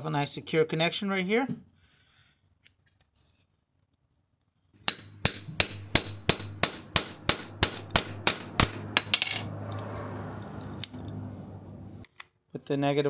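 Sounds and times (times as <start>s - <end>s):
hammer striking metal: 4.8s - 9.5s.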